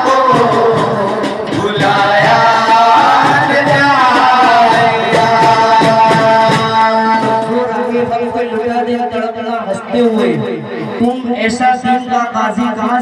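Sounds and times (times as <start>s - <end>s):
light percussive beats: 0.0s - 13.0s
man singing into a microphone: 0.0s - 13.0s.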